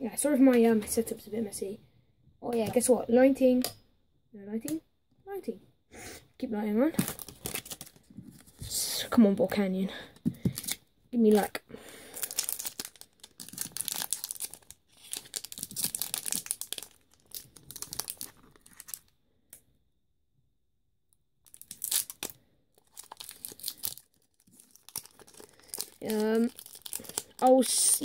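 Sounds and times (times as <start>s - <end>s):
foil wrapper tearing and crinkling: 7.0s - 8.1s, 12.1s - 19.1s, 21.5s - 28.0s.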